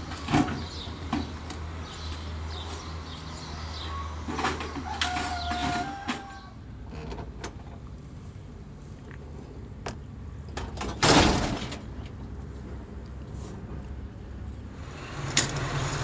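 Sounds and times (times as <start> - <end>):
loud metal clunk: 10.6 - 11.9.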